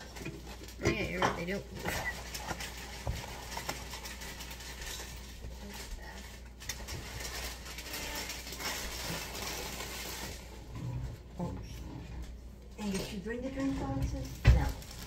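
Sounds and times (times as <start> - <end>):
kitchen things clattering on countertop: 0.0 - 10.3
low room hum: 0.0 - 15.0.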